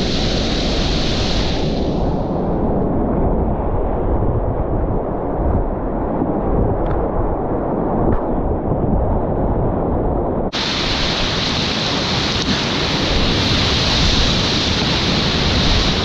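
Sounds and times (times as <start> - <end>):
wind buffeting microphone: 0.0 - 16.0
whitewater rapids rushing: 10.6 - 16.0.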